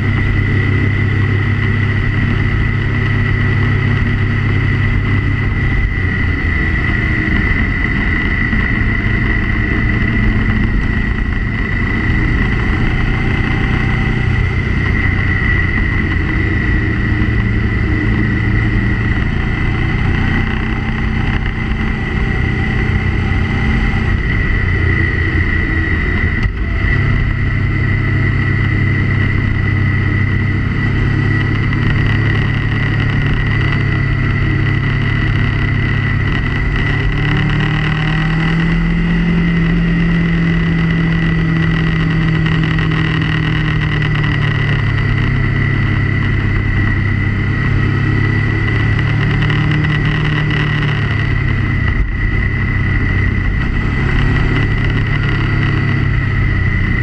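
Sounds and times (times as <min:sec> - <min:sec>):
motorcycle engine whine: 0:00.0 - 0:57.0.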